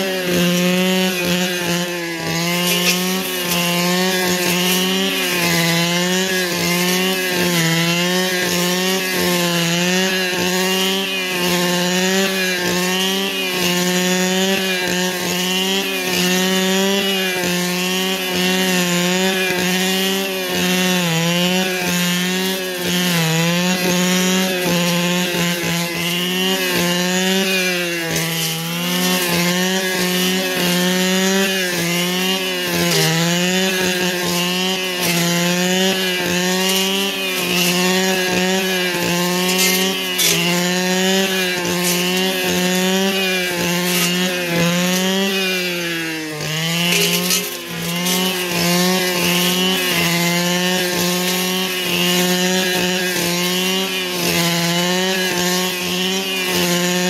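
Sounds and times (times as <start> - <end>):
two-stroke engine revving: 0.0 - 57.0.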